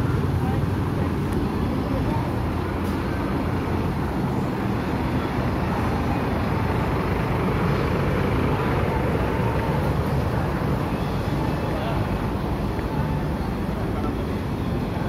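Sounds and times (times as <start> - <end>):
cars passing: 0.0 - 15.0
motorcycles passing: 3.2 - 14.4.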